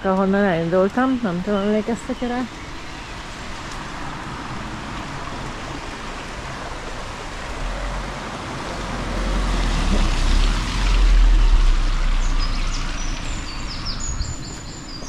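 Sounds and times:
birds chirping: 0.1 - 3.7, 11.8 - 15.0
stream rushing: 1.9 - 14.2
car passing on wet road: 2.5 - 15.0.

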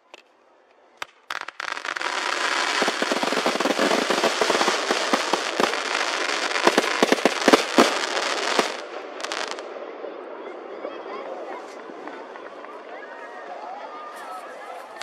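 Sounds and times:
fireworks sharp bangs: 1.0 - 9.6
fireworks crackling: 1.0 - 9.8.

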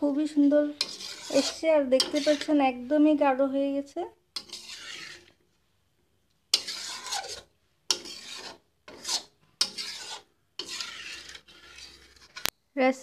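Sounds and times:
spatula scraping metal pan: 0.2 - 3.2, 4.3 - 5.5, 6.5 - 12.5.

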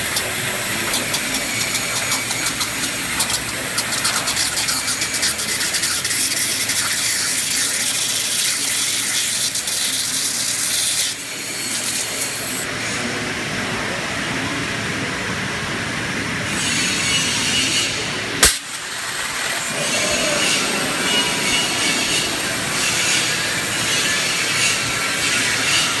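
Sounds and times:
waterjet cutter hissing: 0.0 - 13.1, 16.4 - 26.0.

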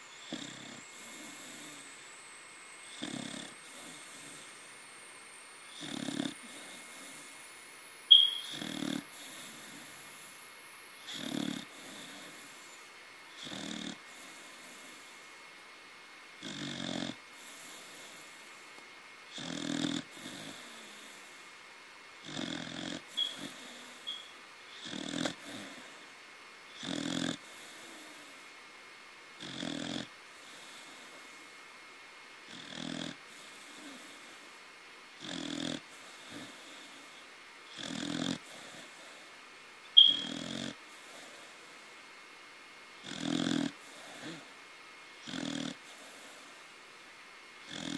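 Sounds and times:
dog snoring: 0.0 - 2.0, 2.8 - 4.7, 5.6 - 7.5, 8.1 - 10.4, 11.0 - 15.2, 16.4 - 18.4, 19.3 - 21.2, 22.2 - 26.1, 26.7 - 28.4, 29.4 - 31.5, 32.5 - 34.5, 35.2 - 39.3, 40.0 - 41.6, 43.0 - 44.6, 45.2 - 46.6, 47.6 - 47.9
high whistle in snore: 8.1 - 9.0, 22.3 - 24.4, 39.9 - 40.5.

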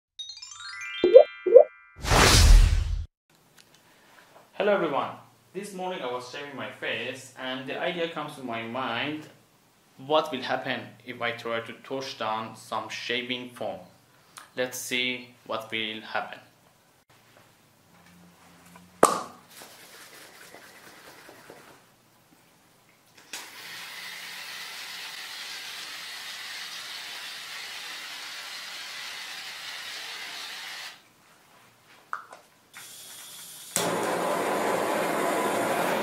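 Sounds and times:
gas torch burning rush: 33.7 - 36.0.

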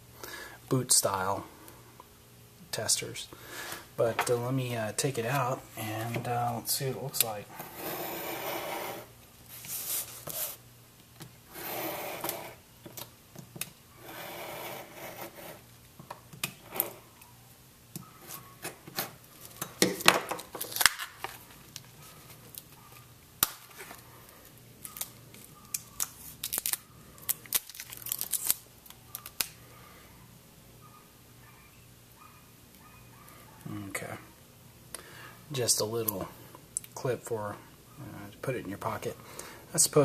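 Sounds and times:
stiff plastic crackling: 18.6 - 29.6.

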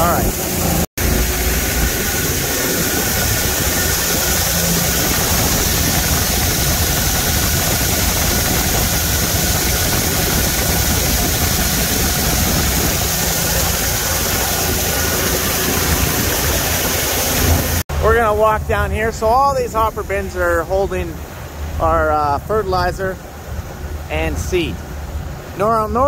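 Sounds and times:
wind buffeting microphone: 0.0 - 25.8
engine running steadily: 0.0 - 26.0
fertilizer pouring: 1.0 - 17.8.

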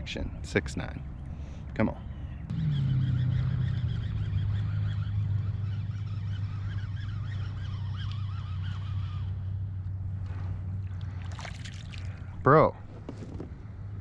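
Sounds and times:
fish splashing: 10.4 - 12.4.

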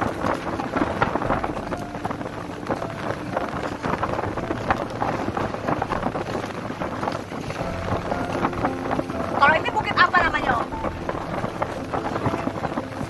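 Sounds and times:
water splashing along hull: 0.0 - 13.0
wind buffeting microphone: 0.0 - 13.0.

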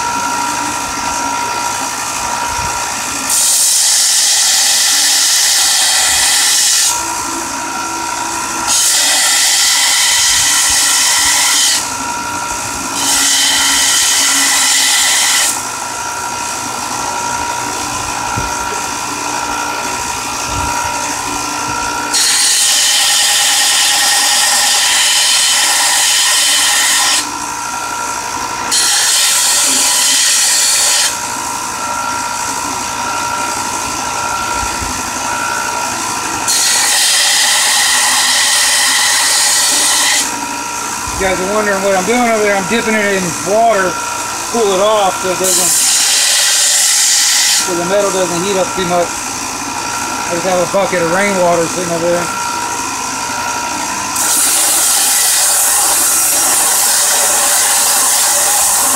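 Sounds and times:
high hissing blade grind: 2.8 - 15.7, 22.0 - 27.3, 28.6 - 32.0, 36.4 - 53.5, 54.1 - 58.9
belt sander motor whine: 4.2 - 58.9.

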